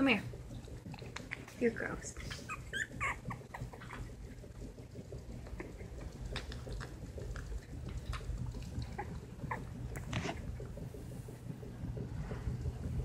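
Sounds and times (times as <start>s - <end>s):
puppy squeaking: 2.4s - 4.0s.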